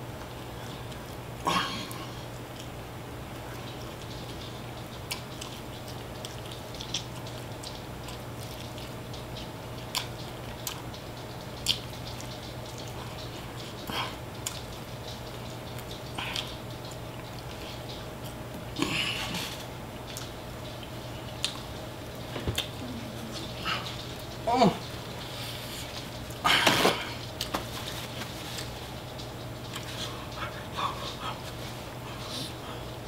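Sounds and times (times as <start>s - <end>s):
mouth chewing clicks and smacks: 4.9s - 18.4s, 19.9s - 24.4s
low hum: 11.0s - 33.0s
rustling: 26.8s - 29.2s.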